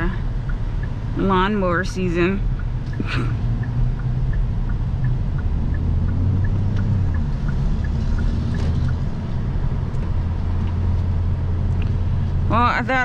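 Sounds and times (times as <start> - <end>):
car engine and road noise: 0.0 - 13.0
light ticking: 0.1 - 11.1.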